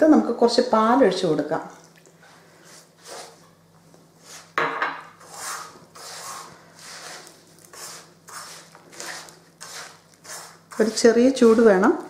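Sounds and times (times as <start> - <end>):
scratchy rubbing in a pan: 2.3 - 3.5, 4.1 - 12.0.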